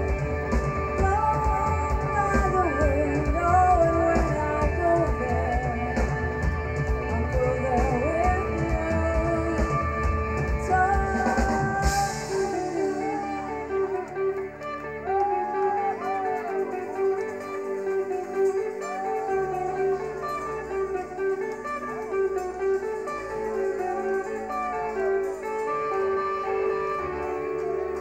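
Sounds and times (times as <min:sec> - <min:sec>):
bass: 0:00.0 - 0:15.2
electric guitar lead lines: 0:00.0 - 0:28.0
keyboard chords: 0:00.0 - 0:28.0.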